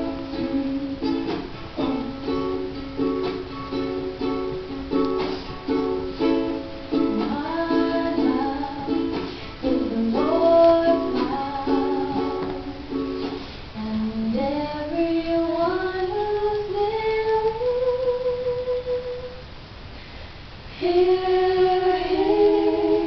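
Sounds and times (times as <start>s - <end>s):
person singing: 0.0s - 2.7s, 4.9s - 19.4s, 20.8s - 23.0s
ukulele strumming: 0.0s - 19.4s, 20.8s - 23.0s.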